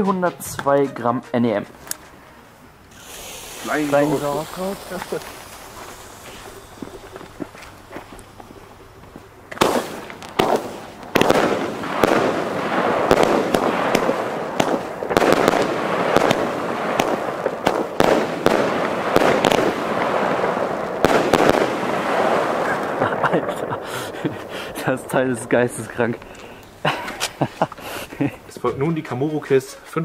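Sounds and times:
fireworks bursts crackling: 1.7 - 29.6
fuse sputtering: 2.9 - 10.4
fireworks shots launching: 2.9 - 28.5.

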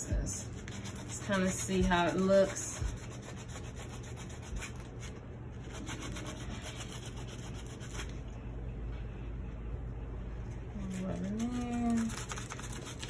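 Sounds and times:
sandpaper rubbing denim: 0.4 - 8.1.

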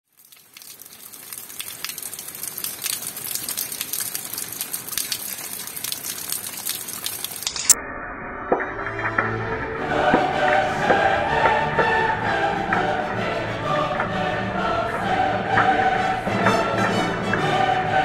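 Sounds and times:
rain on gravel: 0.0 - 7.8
sharp raindrop taps: 0.1 - 7.8
orchestral music: 8.5 - 18.0.

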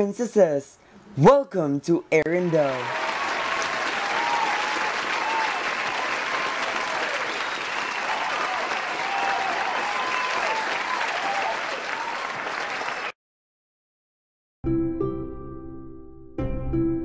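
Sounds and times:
crowd applauding and cheering: 2.6 - 13.2.

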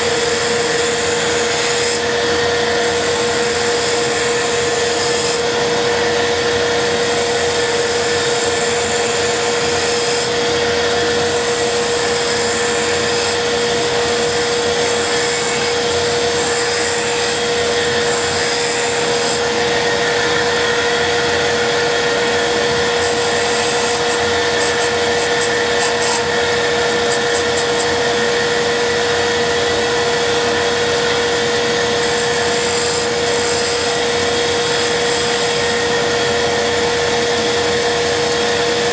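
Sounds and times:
lathe humming: 0.0 - 38.9
gouge cutting wood hiss: 2.8 - 5.5, 6.8 - 28.5, 32.0 - 36.2.

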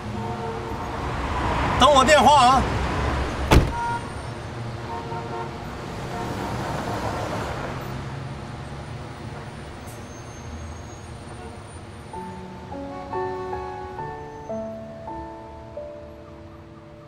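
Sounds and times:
traffic noise: 0.0 - 17.0
car door slamming: 3.4 - 4.0.

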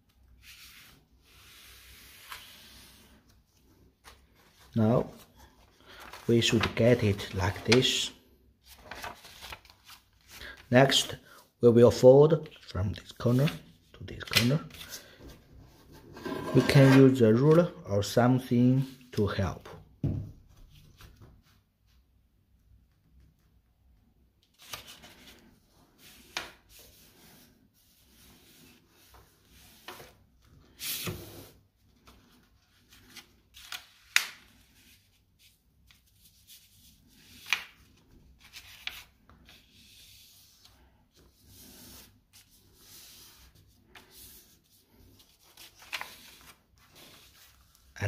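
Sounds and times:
paper crackling: 8.6 - 10.6, 45.1 - 48.0
paper rustling and rubbing: 8.6 - 10.6, 24.5 - 48.0.

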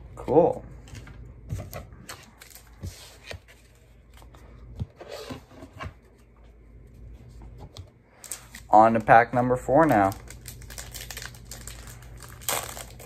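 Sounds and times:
trading cards rustling: 9.7 - 13.0.

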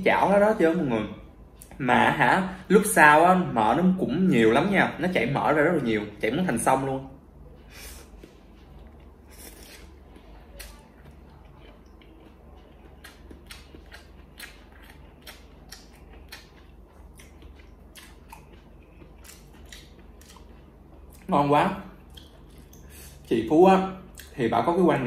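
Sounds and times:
wet chewing: 8.0 - 21.3, 22.0 - 23.3.

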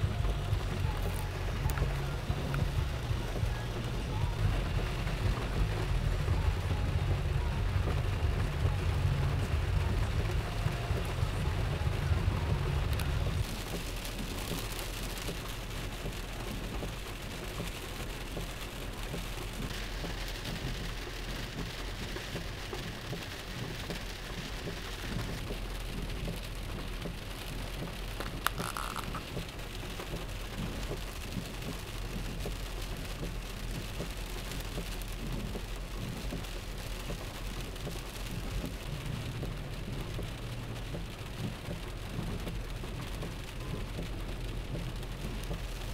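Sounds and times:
low rumble: 0.0 - 16.8
heavy rain on car: 0.0 - 45.9.

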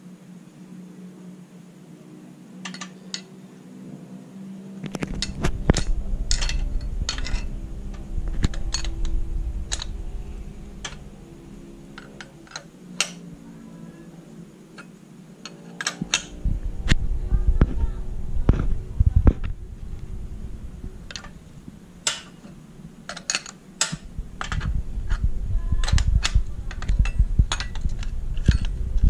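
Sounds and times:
metallic clicks of handled parts: 2.6 - 3.3, 4.8 - 10.0, 10.7 - 11.1, 11.9 - 13.3, 14.7 - 17.0, 21.1 - 21.4, 22.0 - 28.8
low rumble: 4.8 - 15.4, 16.0 - 29.0.

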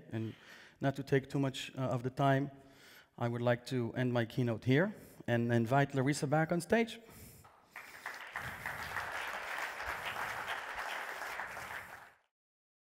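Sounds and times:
audience applauding: 7.5 - 12.3.

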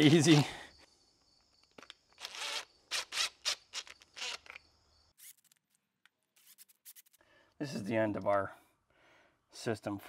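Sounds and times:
cordless drill bursts: 2.2 - 4.6.

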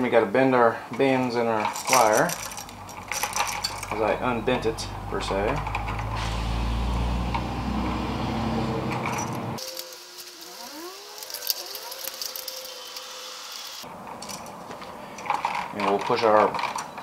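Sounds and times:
metallic clicks and rattles of wire: 0.9 - 4.2, 14.1 - 17.0.

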